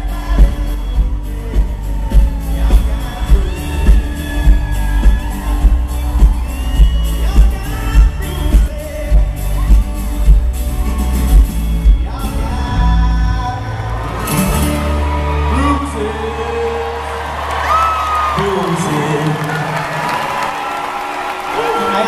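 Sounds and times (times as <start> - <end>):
lead vocal: 0.0 - 9.6, 11.8 - 18.0
kick-drum and bass beat: 0.0 - 12.4
live pop-rock band: 0.0 - 22.0.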